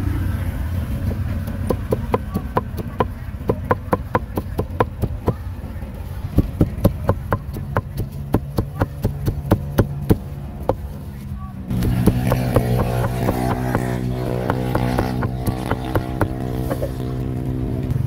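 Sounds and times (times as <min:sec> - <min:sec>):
cleaver chopping on wooden block: 0:01.5 - 0:05.4, 0:06.4 - 0:10.8, 0:11.7 - 0:16.8.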